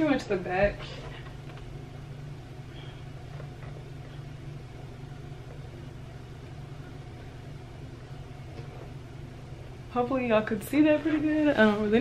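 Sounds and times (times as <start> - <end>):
washing machine humming: 0.0 - 12.0.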